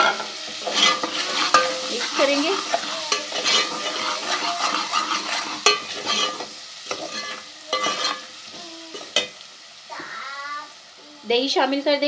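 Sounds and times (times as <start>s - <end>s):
spoon scraping a pan: 0.0s - 9.4s
sizzling hiss: 0.0s - 12.0s.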